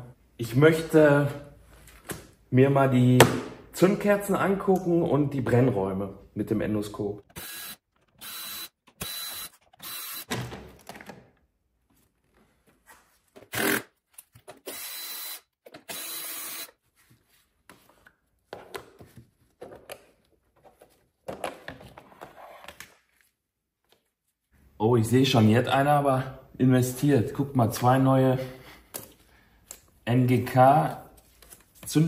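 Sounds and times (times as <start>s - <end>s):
cordless power tool whining: 7.4s - 10.3s, 14.6s - 16.7s.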